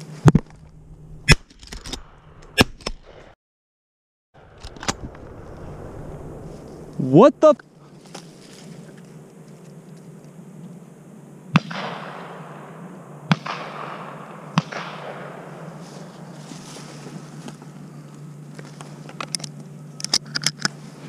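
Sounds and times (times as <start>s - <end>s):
shotgun blasts with echo: 11.5s - 15.8s.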